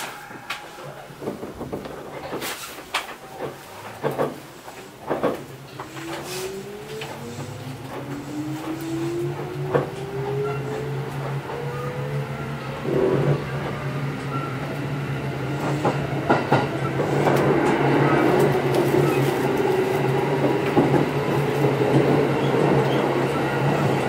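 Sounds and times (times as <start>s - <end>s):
wheels clicking over rail joints: 0.0s - 12.2s
train low hum: 0.0s - 24.0s
train motor whine: 5.6s - 19.2s.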